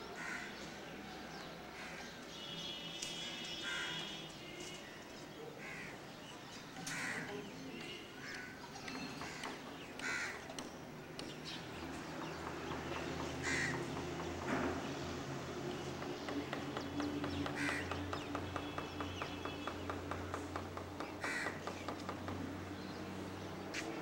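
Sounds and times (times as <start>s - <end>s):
crows cawing: 0.2s - 0.6s, 3.6s - 4.0s, 5.6s - 6.0s, 6.8s - 7.3s, 8.2s - 8.6s, 9.2s - 10.5s, 13.4s - 13.8s, 17.6s - 18.0s, 21.2s - 21.8s.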